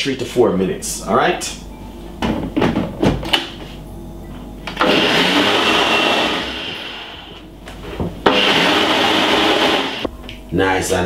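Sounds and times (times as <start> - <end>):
electric blender running: 4.8 - 7.5, 8.2 - 10.1.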